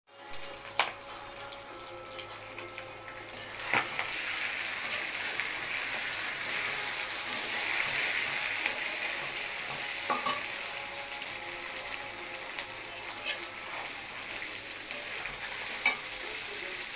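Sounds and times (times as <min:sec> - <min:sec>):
meat sizzling in oil: 0:00.1 - 0:16.9
spoon knocking against pan: 0:09.2 - 0:10.5.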